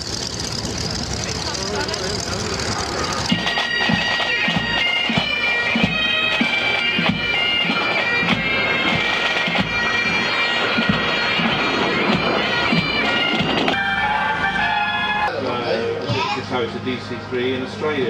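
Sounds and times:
bagpipes playing over drones: 0:00.1 - 0:18.0
marching drums beating: 0:02.2 - 0:14.1.

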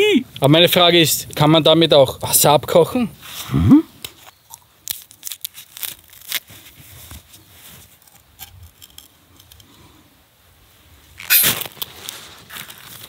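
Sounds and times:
small crackles: 0:04.0 - 0:10.0, 0:11.0 - 0:13.0.

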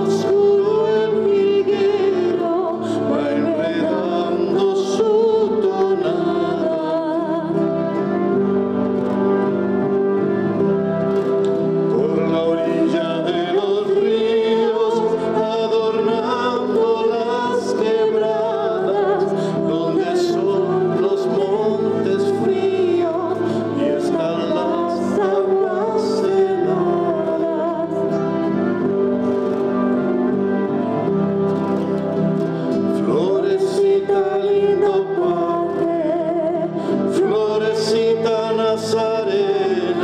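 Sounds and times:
woman singing into a microphone: 0:00.0 - 0:08.0, 0:17.1 - 0:28.3, 0:33.3 - 0:40.0
flute: 0:00.0 - 0:40.0.

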